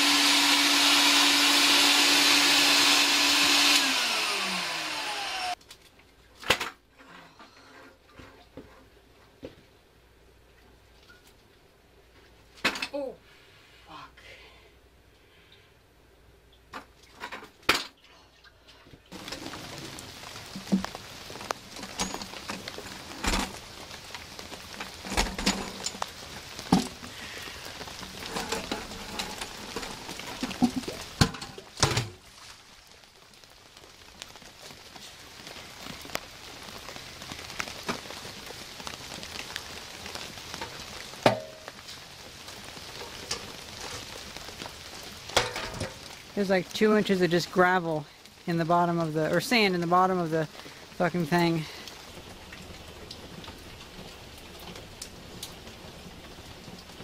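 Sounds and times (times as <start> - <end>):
rain falling: 0.0 - 6.7, 18.5 - 57.0.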